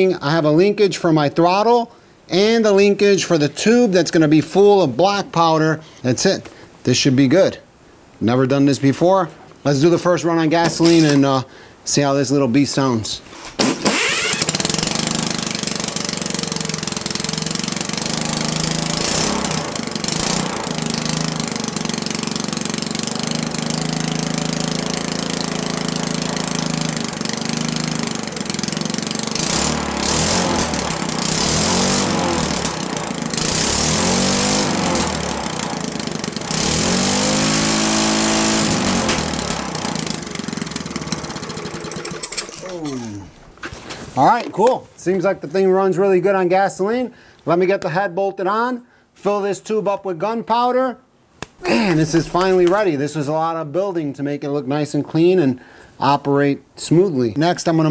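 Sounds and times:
small engine revving: 0:13.6 - 0:43.3.

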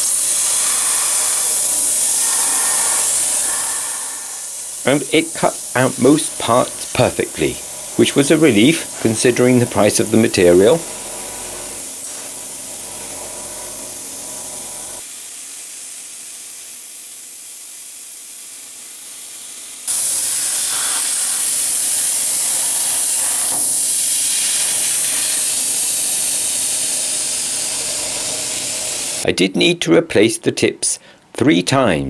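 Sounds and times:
hiss of rushing air: 0:00.0 - 0:10.8, 0:19.9 - 0:29.2.

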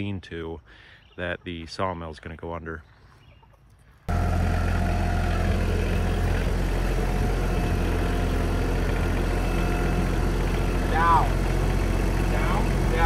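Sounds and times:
tractor engine running: 0:04.1 - 0:13.0.

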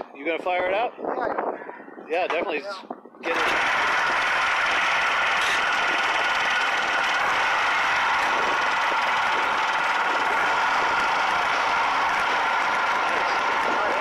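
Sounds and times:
snowmobile engine running: 0:03.2 - 0:14.0.

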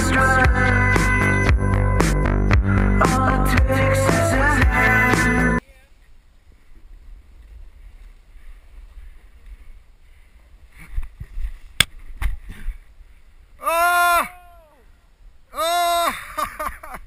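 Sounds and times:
snowboards sliding through snow: 0:06.5 - 0:11.8
person yelling: 0:13.6 - 0:14.8, 0:15.5 - 0:16.2.

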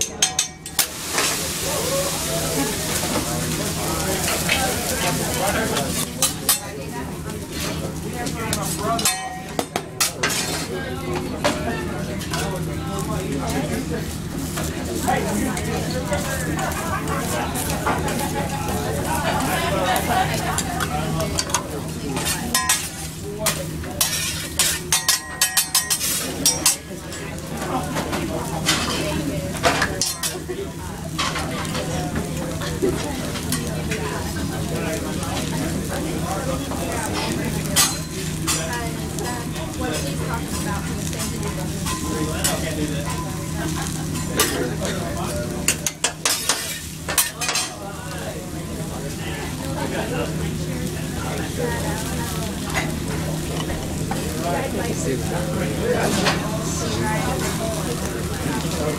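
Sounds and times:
food sizzling on griddle: 0:00.0 - 0:58.9
metal spatulas scraping on griddle: 0:08.6 - 0:10.7, 0:22.2 - 0:26.9, 0:28.0 - 0:29.0, 0:37.1 - 0:38.7, 0:45.6 - 0:47.8.

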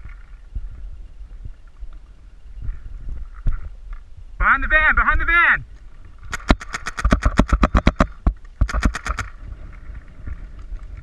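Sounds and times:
wind rumble on microphone: 0:00.0 - 0:11.0
paintball marker firing pops: 0:06.3 - 0:09.3.

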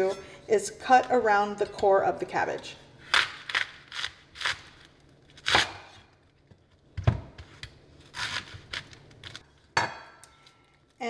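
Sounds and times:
knife crunching through cabbage: 0:03.0 - 0:06.1, 0:07.6 - 0:09.5.

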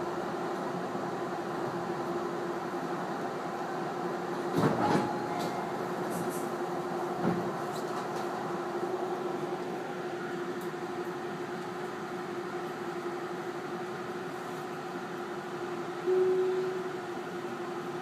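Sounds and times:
train equipment hum: 0:00.0 - 0:18.0
higher electric tone: 0:16.1 - 0:17.0.

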